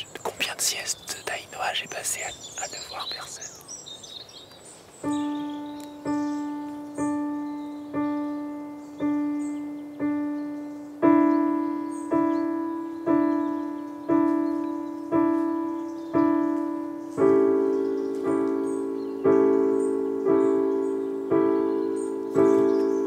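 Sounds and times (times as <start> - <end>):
single piano notes: 5.0 - 23.0.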